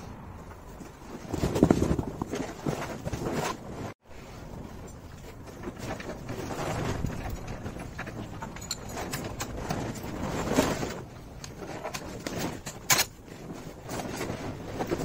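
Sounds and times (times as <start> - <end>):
metallic clicks and knocks of parts: 7.0 - 10.2, 11.4 - 13.4.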